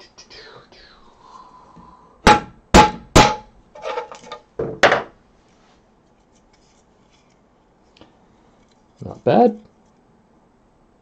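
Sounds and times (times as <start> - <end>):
mallet knocking plastic part: 2.3 - 3.5.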